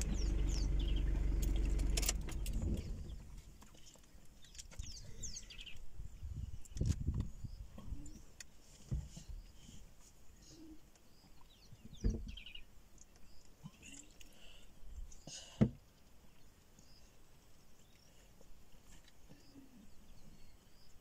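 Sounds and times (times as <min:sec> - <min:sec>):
faint bird chirps: 0:16.4 - 0:21.0.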